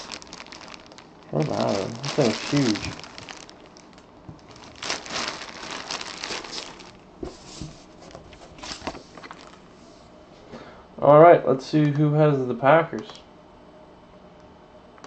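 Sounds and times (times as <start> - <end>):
plastic bag crinkling: 0.0 - 9.8.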